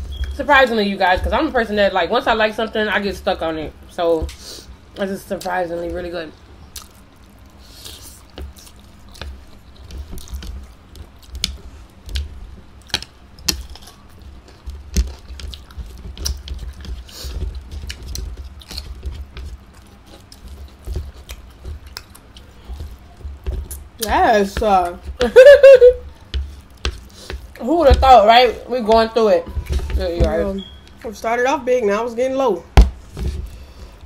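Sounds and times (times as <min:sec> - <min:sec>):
wet chewing of noodles: 0:06.7 - 0:24.1.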